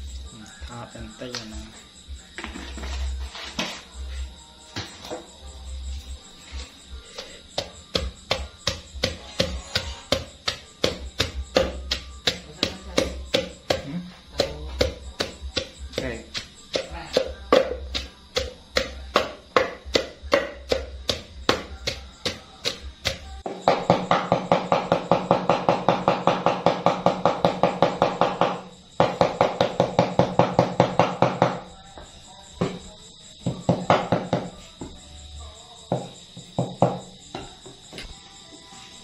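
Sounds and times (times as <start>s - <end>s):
pestle pounding in stone mortar: 7.1s - 31.6s, 33.4s - 34.6s
cleaver chopping on wooden block: 7.6s - 31.5s.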